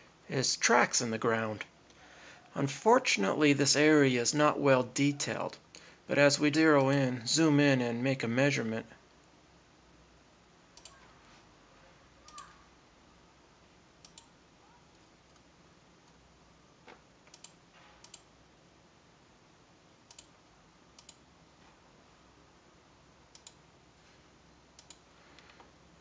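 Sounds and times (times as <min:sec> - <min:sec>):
faint computer mouse clicks: 0:10.8 - 0:11.0, 0:20.1 - 0:20.3, 0:21.0 - 0:21.2, 0:23.3 - 0:23.6, 0:24.8 - 0:25.6.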